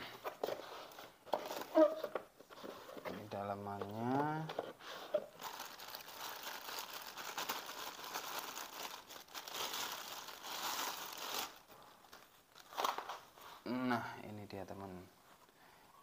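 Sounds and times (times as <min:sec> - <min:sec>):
plastic bag crinkling: 0:05.2 - 0:13.3.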